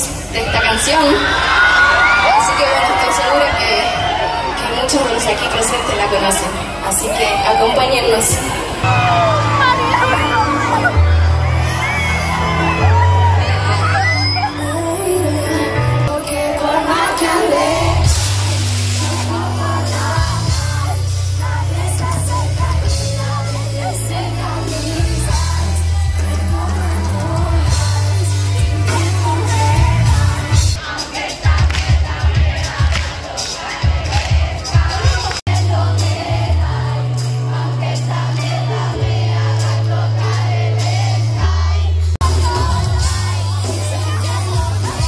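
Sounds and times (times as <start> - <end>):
woman singing lead vocal: 2.0 - 45.0
deep bass line: 8.4 - 16.2, 17.8 - 30.8
cymbal hiss: 17.9 - 20.0.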